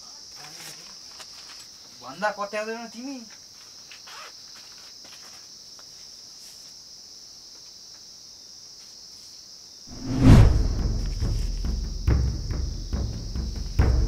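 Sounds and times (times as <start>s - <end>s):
crickets chirring: 0.0s - 14.0s
deep drum boom music sting: 10.0s - 13.0s.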